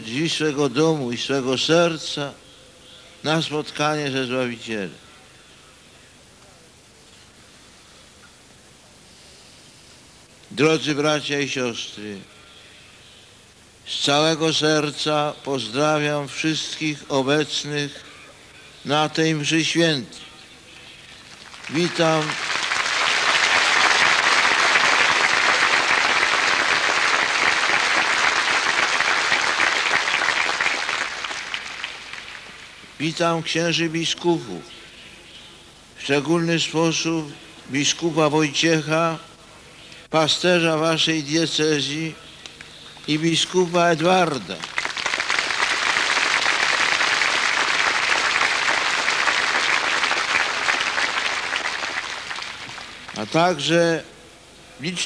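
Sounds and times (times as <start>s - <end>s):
large crowd applauding: 21.2s - 33.0s, 44.5s - 53.4s.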